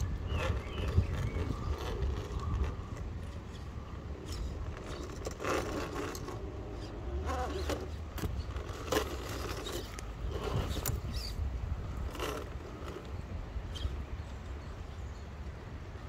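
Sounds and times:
tyres scraping on stone: 0.0 - 13.2
electric motor and gears whirring: 0.0 - 14.0.

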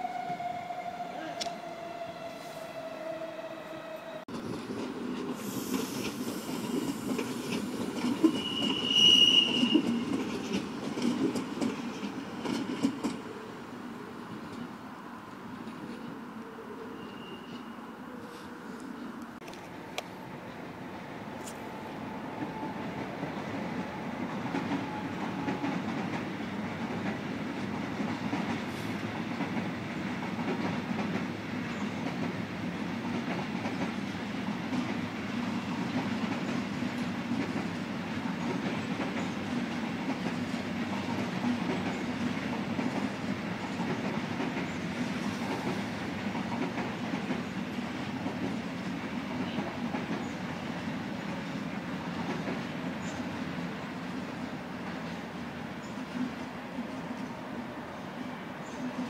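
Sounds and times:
train wheels rumbling and clacking: 4.3 - 13.4, 21.9 - 57.4.

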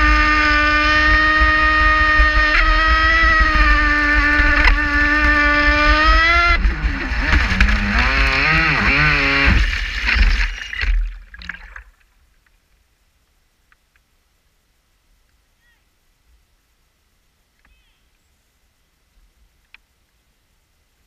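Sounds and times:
electric motor whining: 0.0 - 10.8
rushing water: 6.7 - 12.4.

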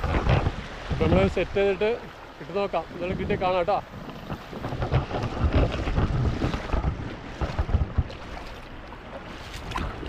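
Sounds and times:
river water rushing: 0.0 - 6.8
wind buffeting microphone: 0.0 - 10.0.

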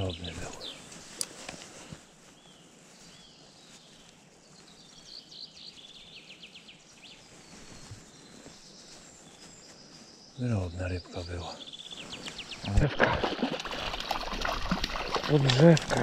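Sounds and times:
small bird singing: 0.0 - 1.2, 2.3 - 12.8.

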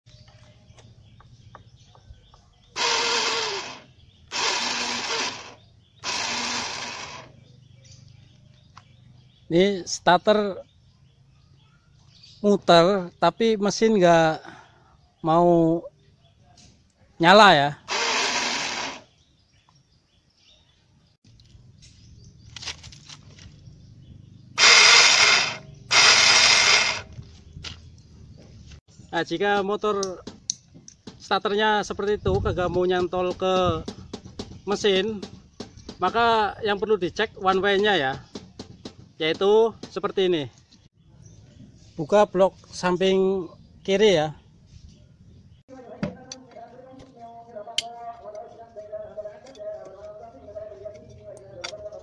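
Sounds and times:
electric starter motor whirring: 2.8 - 7.3, 17.9 - 19.0, 24.6 - 27.2.

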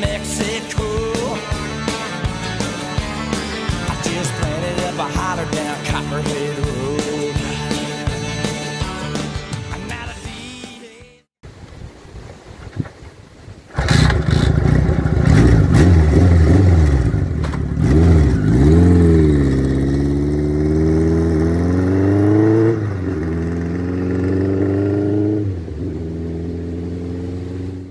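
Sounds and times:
motorcycle engine revving: 13.7 - 27.9.

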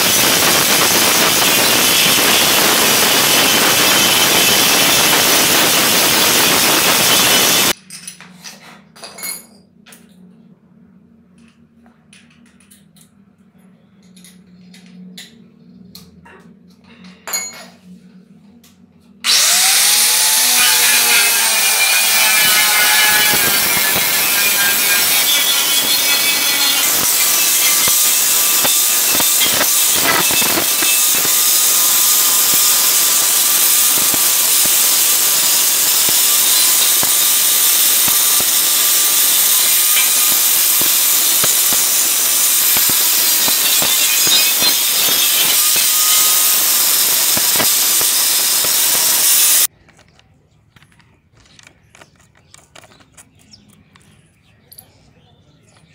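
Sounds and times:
angle grinder grinding steel: 0.0 - 7.8, 19.2 - 49.7
clicks fitting grinder disc: 20.3 - 50.1.

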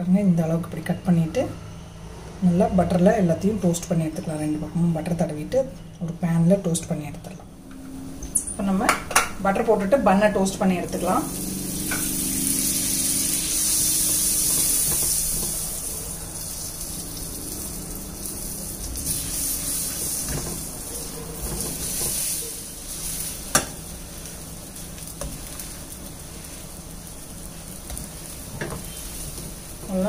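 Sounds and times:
butter sizzling in frying pan: 10.8 - 30.0.

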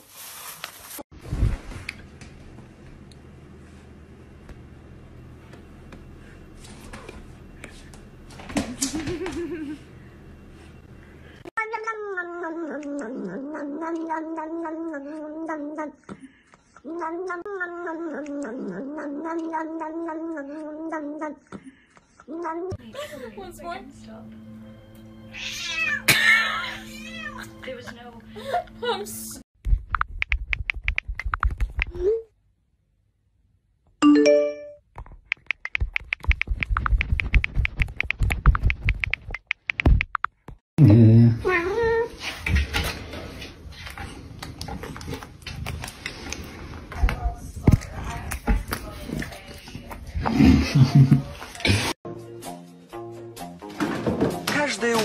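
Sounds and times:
cat yowling: 25.3 - 27.4
notification chime: 34.0 - 34.8.

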